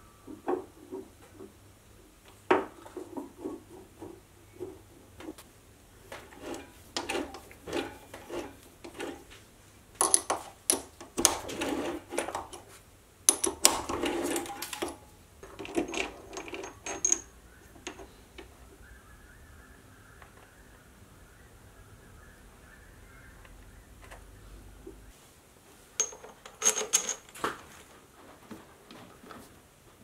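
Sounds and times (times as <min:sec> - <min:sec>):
metal chips clicking and rattling: 0:13.3 - 0:18.1, 0:26.0 - 0:27.4.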